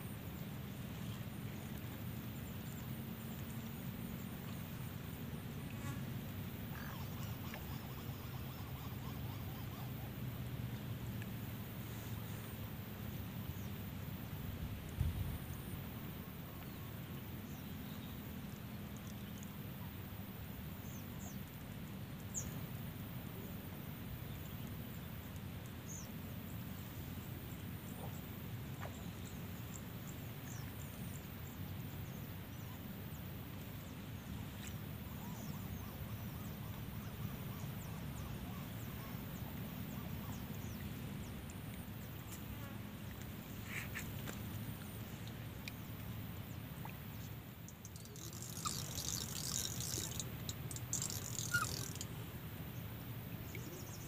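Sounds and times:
high insect drone: 0:00.0 - 0:14.4, 0:47.1 - 0:54.0.

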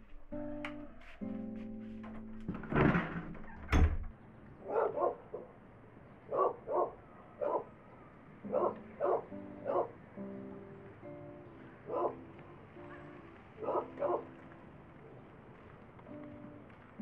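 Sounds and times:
dog barking: 0:04.6 - 0:05.6, 0:06.3 - 0:10.0, 0:11.8 - 0:14.4.

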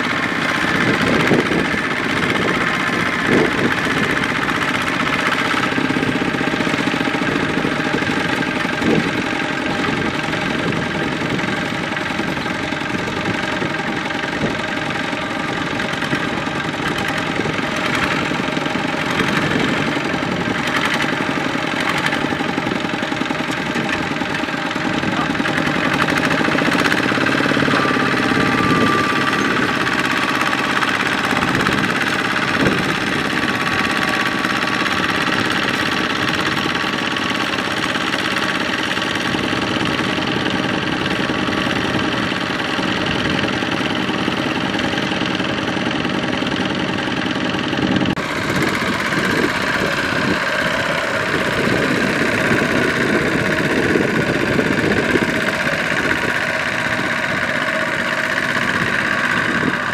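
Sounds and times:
diesel engine running under load: 0:00.0 - 0:59.9.

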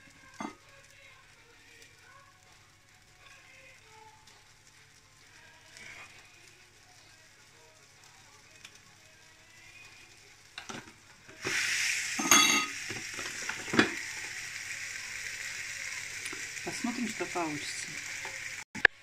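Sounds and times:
batter sizzling in waffle maker: 0:00.0 - 0:19.0
waffle maker lid clatter: 0:12.2 - 0:14.0.

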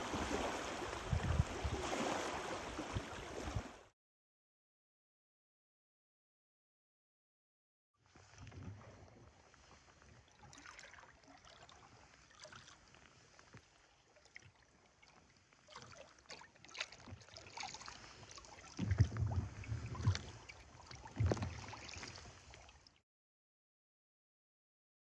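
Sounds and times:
low thumps and splashes: 0:00.0 - 0:03.9, 0:15.7 - 0:22.8
water lapping against kayak: 0:00.0 - 0:03.9, 0:08.0 - 0:23.0.

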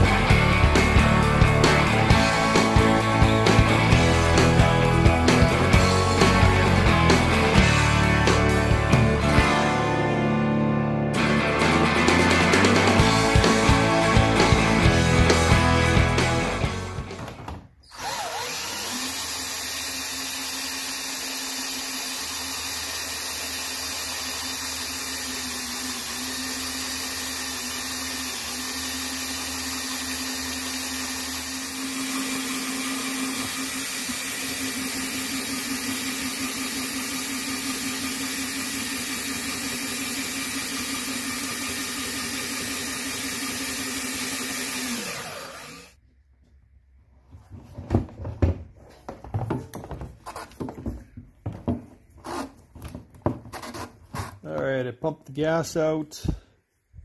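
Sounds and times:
cordless drill running pump: 0:17.9 - 0:46.0.

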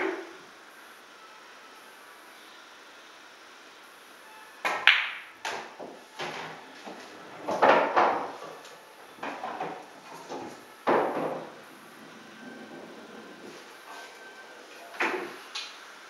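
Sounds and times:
pool balls clacking: 0:00.0 - 0:00.4, 0:04.6 - 0:15.8.

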